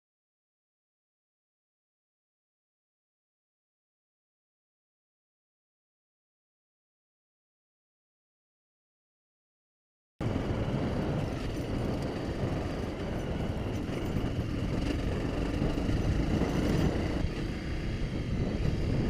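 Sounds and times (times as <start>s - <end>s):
motorcycle engine running: 10.2s - 19.0s
wind and road noise: 10.2s - 19.0s.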